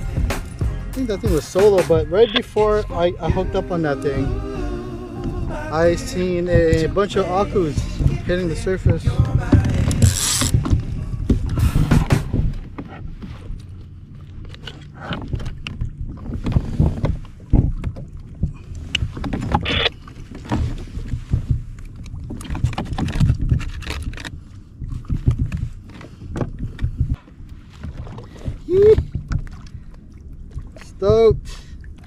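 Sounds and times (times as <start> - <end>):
water sloshing: 0.0 - 32.0
wind: 0.0 - 32.0.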